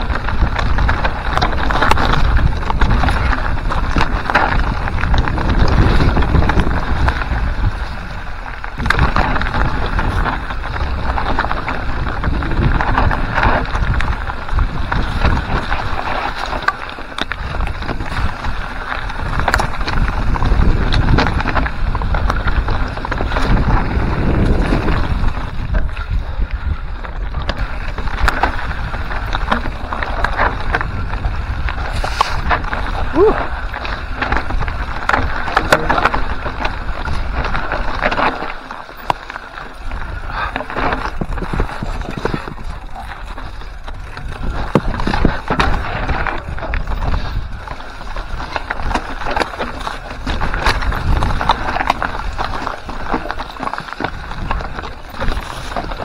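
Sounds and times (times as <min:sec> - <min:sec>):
bike knocking on rocks: 0:00.0 - 0:08.0, 0:08.6 - 0:26.2, 0:26.8 - 0:56.0
bike rattling: 0:00.0 - 0:56.0
tyres crunching over stones: 0:00.0 - 0:56.0
wind buffeting microphone: 0:00.0 - 0:56.0.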